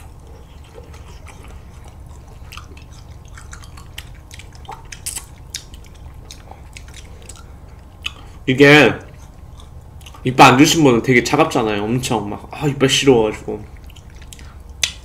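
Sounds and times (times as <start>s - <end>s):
wet mouth eating sounds: 0.0s - 8.4s, 9.0s - 10.3s, 13.7s - 15.0s
steady low hum: 0.0s - 15.0s.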